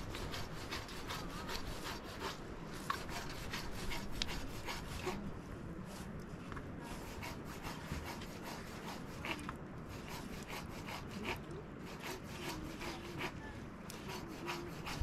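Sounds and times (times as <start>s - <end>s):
rhythmic rubbing on wood: 0.0s - 5.3s, 6.8s - 15.0s.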